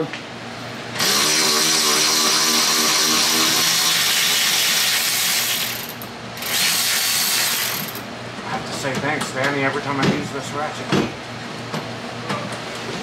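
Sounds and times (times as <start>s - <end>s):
power ratchet running: 0.9s - 8.1s.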